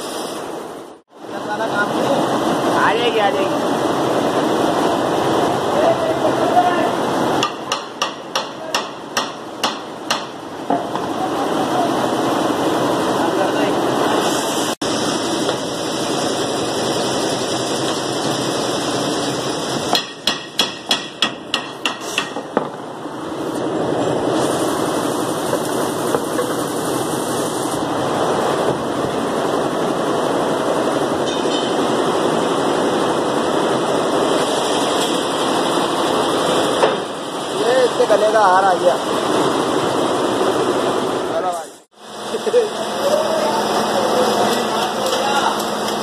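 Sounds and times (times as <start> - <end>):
steady background noise: 0.0 - 46.0
hammer striking metal: 7.4 - 11.1, 19.9 - 22.8, 31.2 - 31.9.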